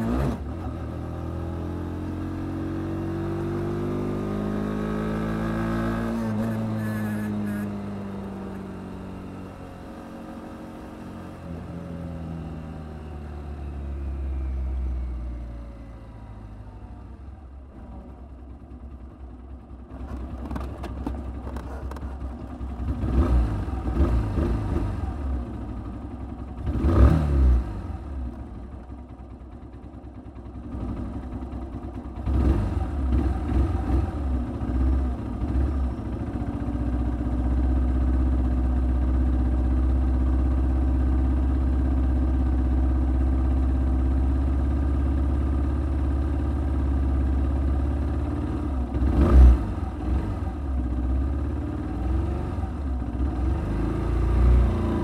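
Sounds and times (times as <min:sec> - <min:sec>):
motorcycle engine idling: 0:06.3 - 0:26.8, 0:27.8 - 0:49.1.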